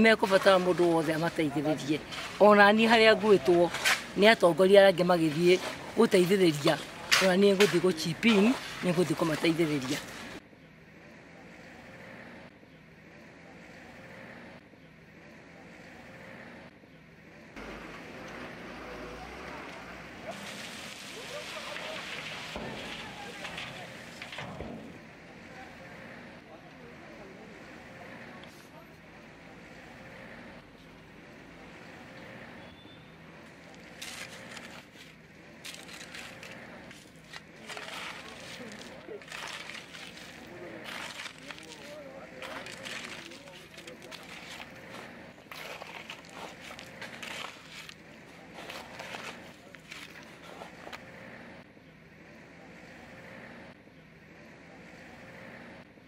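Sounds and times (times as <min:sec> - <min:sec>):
hoe scraping gravel: 0:00.0 - 0:10.4, 0:17.6 - 0:26.3, 0:33.3 - 0:51.5
faint motorcycle engine running: 0:25.0 - 0:56.0.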